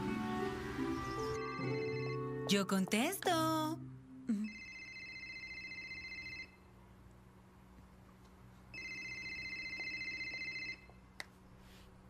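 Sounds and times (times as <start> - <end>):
telephone ringing: 1.4 - 2.5, 4.4 - 6.7, 8.7 - 10.9.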